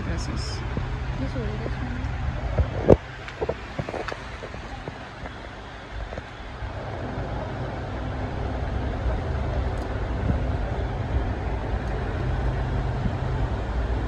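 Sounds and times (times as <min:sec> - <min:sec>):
low rumble of road traffic: 0:00.0 - 0:14.0
street market noise: 0:00.0 - 0:14.0.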